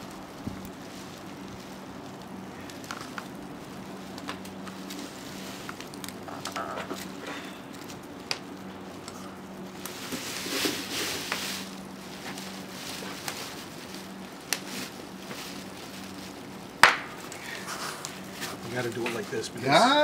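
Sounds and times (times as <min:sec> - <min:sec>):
faint steady hum: 0:00.0 - 0:20.0
plastic sheeting rustling: 0:00.0 - 0:20.0.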